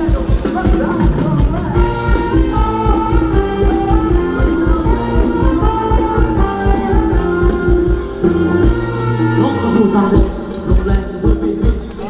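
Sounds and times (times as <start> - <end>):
live band playing dance music: 0.0 - 12.0
person singing: 0.0 - 12.0.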